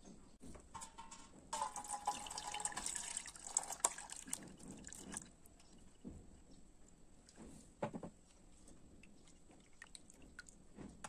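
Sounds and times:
liquid pouring onto metal strainer: 1.6 - 5.2.

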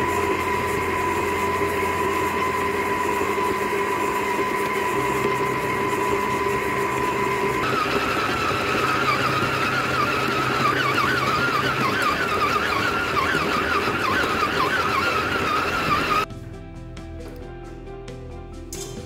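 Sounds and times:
stand mixer motor whining: 0.0 - 16.3.

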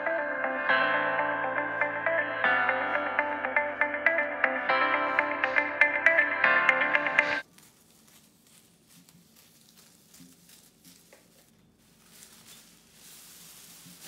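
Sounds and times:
plastic bag crinkling under scissors: 7.4 - 14.0.

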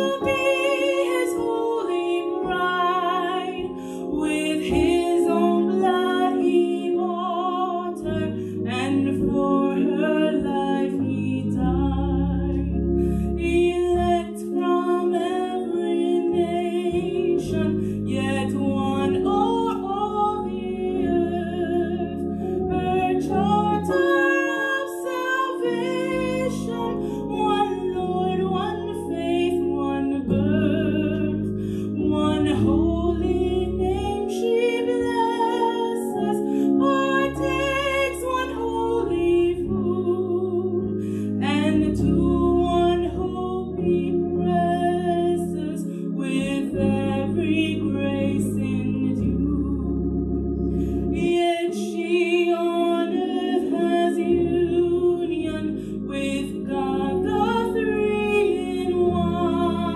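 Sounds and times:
sustained low accompaniment chords: 0.0 - 59.9
woman singing a hymn: 0.0 - 59.9.

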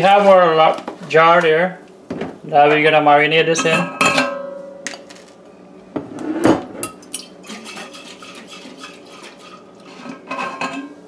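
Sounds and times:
glassware and utensils clinking: 3.6 - 5.0, 6.8 - 11.0.

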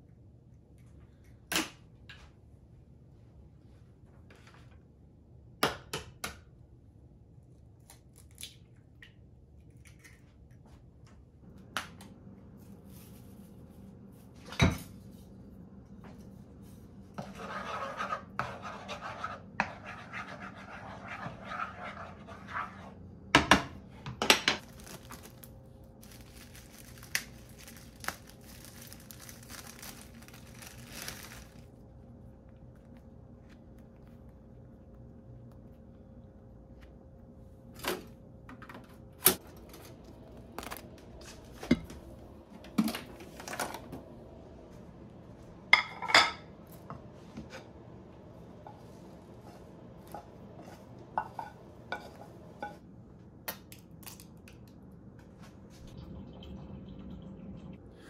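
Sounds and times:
dishes and utensils clinking: 45.8 - 46.5.

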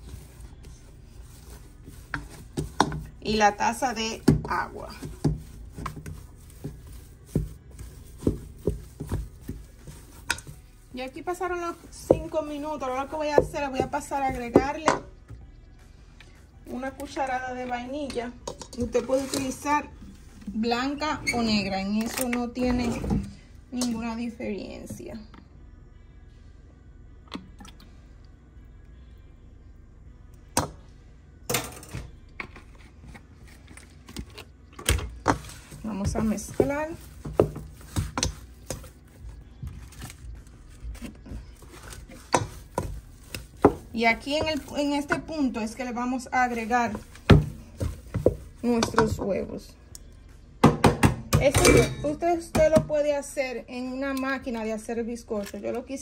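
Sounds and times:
utensils clinking against pot: 51.4 - 52.2.

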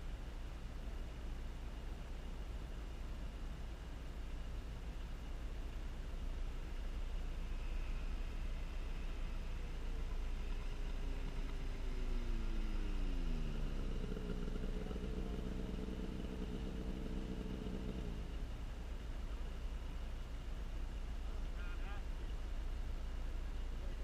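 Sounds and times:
snowmobile engine: 7.2 - 19.4.

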